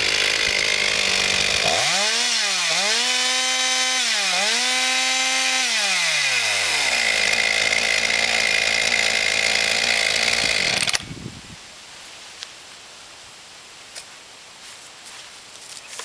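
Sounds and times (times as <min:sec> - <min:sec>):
chainsaw revving and idling: 0:00.0 - 0:11.1.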